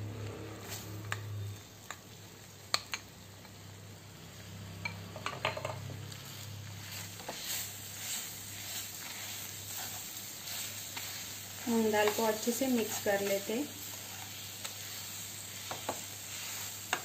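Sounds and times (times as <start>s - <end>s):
soft sizzling: 6.0s - 17.0s
spatula stirring: 6.3s - 17.0s.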